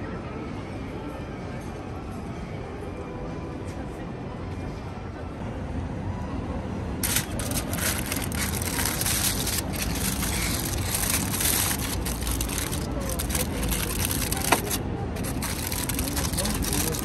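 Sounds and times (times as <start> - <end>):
aluminium foil crackling rustle: 7.0 - 17.0.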